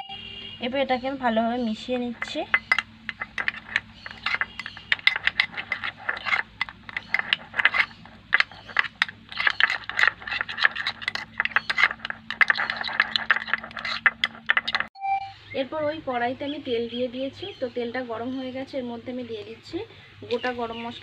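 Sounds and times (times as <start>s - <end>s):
metal spoon scraping glass bowl: 1.7s - 14.9s.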